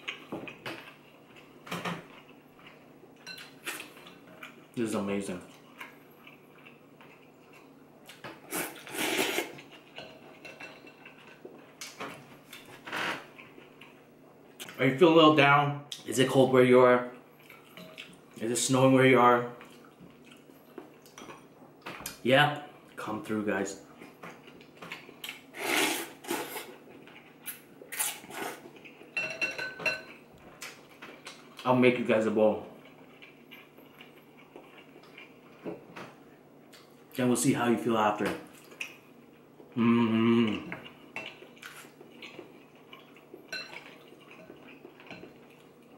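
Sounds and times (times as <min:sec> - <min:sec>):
quiet eating sounds: 0:00.0 - 0:15.0, 0:15.8 - 0:45.9
person slurping noodles: 0:08.5 - 0:09.6, 0:25.5 - 0:26.7, 0:28.0 - 0:28.6
utensils clinking on ceramic bowl: 0:09.9 - 0:11.4, 0:29.2 - 0:30.2, 0:43.5 - 0:45.5.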